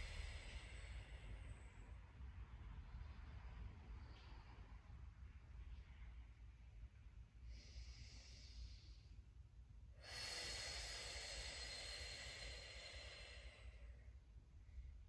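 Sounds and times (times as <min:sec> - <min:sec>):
woman breathing: 0:00.0 - 0:02.5, 0:07.3 - 0:15.0.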